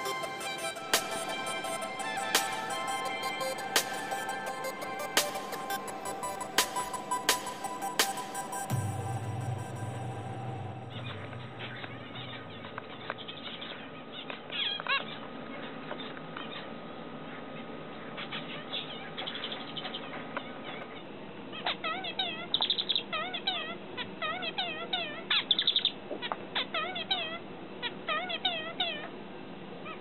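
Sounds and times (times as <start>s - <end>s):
finch singing: 0.0s - 14.8s
finches chirping: 21.6s - 23.6s.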